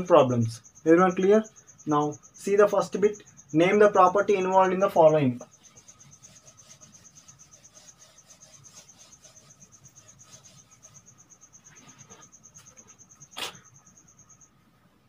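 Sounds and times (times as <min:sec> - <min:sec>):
cricket trilling: 0:00.0 - 0:15.0
duster wiping whiteboard: 0:03.6 - 0:13.6.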